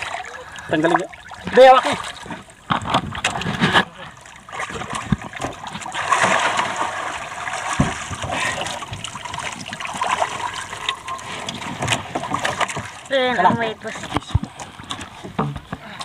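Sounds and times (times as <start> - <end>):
water splashing around boat: 0.0 - 16.0
low knocks on boat: 7.7 - 9.1.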